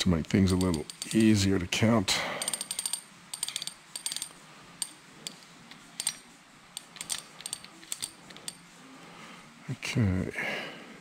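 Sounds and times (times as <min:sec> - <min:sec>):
metal gears clicking: 0:00.4 - 0:01.4, 0:02.4 - 0:08.6.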